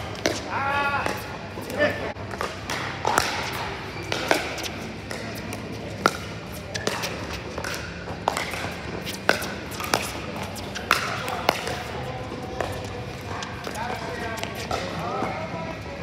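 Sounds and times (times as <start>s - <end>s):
pickleball popping off paddles: 2.3s - 12.0s.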